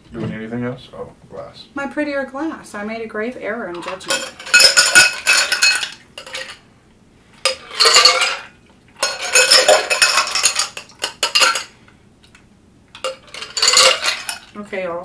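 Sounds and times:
ice cubes clattering in glasses: 3.8s - 6.6s, 7.5s - 11.7s, 13.0s - 14.5s.

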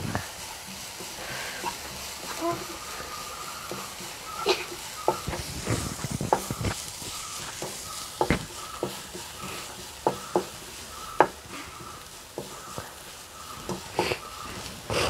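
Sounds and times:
onions sizzling in hot oil: 0.0s - 15.0s
spatula knocking against pan: 3.7s - 5.5s, 6.2s - 6.7s, 7.4s - 14.4s.

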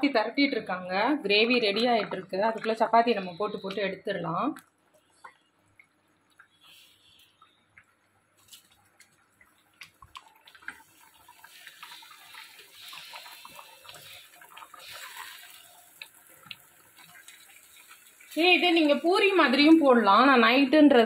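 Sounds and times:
gravy simmering in a pan: 4.8s - 20.9s.

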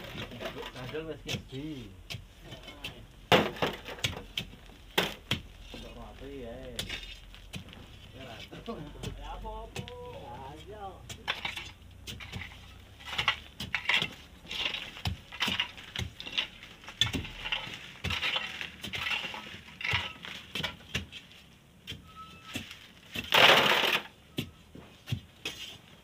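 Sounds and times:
iron bars striking and scraping sand: 8.2s - 21.1s, 21.8s - 24.6s.

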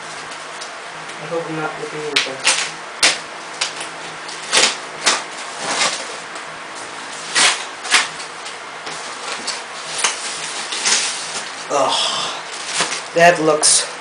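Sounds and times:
faint steady hum: 0.0s - 14.0s
foam wrap rustling: 2.1s - 13.5s
packing tape tearing: 2.2s - 6.2s, 7.1s - 11.7s, 12.5s - 13.2s.

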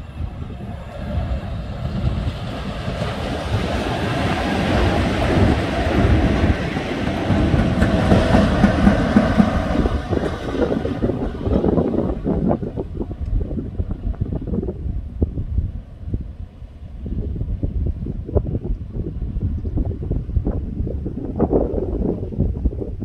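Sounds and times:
wheels on rails: 0.0s - 14.7s
electric locomotives passing: 0.0s - 22.8s.

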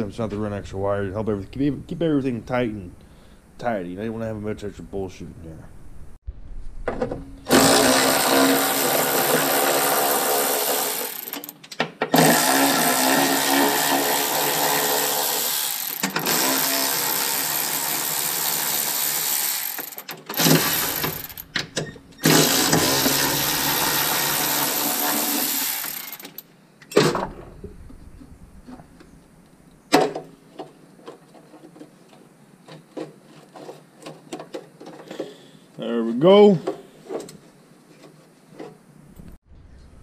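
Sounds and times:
electric ratchet running: 7.5s - 11.6s, 12.2s - 21.5s, 22.2s - 26.4s.

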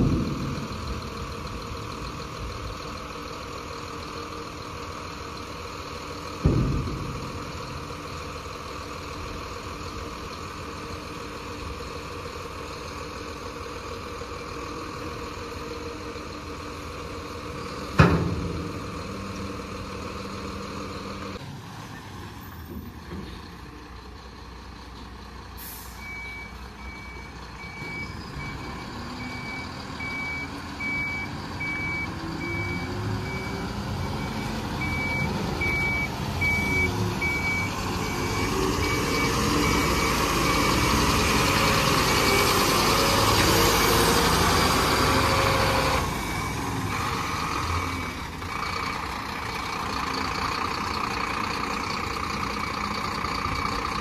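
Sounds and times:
diesel engine: 0.0s - 54.0s
reverse alarm beeping: 25.8s - 41.0s.

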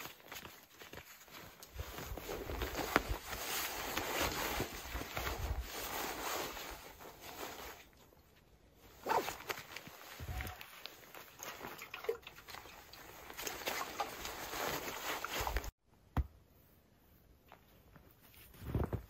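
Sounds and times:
backpack fabric and straps rustling: 0.0s - 11.8s, 12.4s - 15.8s.

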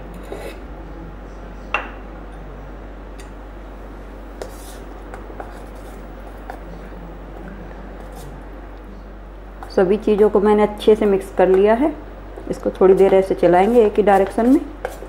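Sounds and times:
spoon stirring thick batter: 4.3s - 8.4s, 9.6s - 15.0s.

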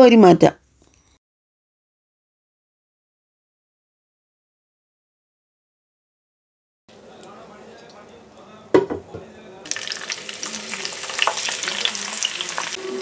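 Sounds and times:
oil sizzling in a frying pan: 9.6s - 13.0s.

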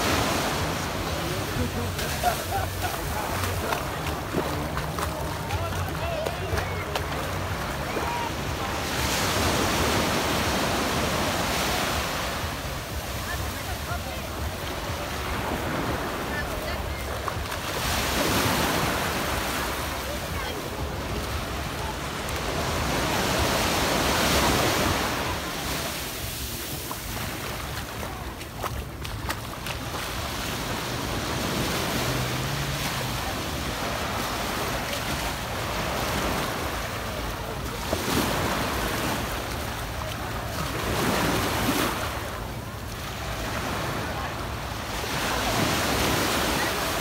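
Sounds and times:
small waves breaking on beach: 0.0s - 47.0s.

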